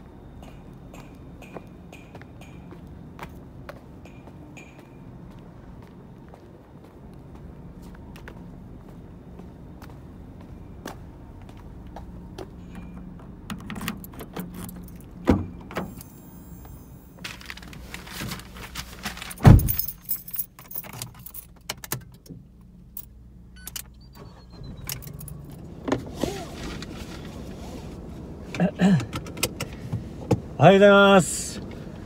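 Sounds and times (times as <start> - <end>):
keys jangling: 13.6 - 15.2, 19.2 - 22.2, 24.9 - 25.6
car door shutting: 19.3 - 19.9.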